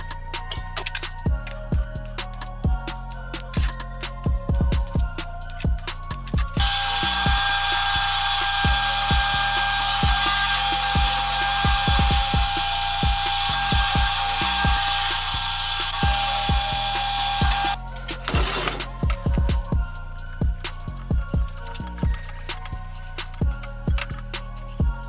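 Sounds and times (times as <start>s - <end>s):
drill press boring steel: 6.5s - 19.1s.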